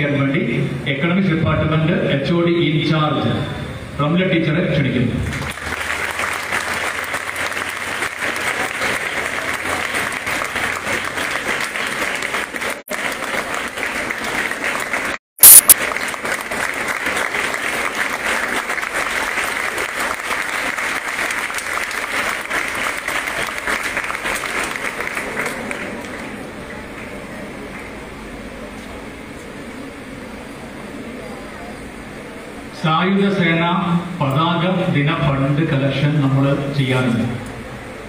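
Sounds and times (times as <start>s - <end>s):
audience applauding: 5.2s - 28.2s
sharp loud crackle: 15.4s - 16.1s.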